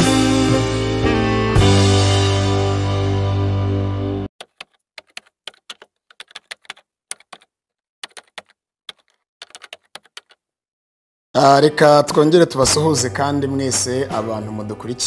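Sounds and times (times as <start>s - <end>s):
intro music: 0.0s - 4.3s
keyboard typing clicks: 4.4s - 10.4s.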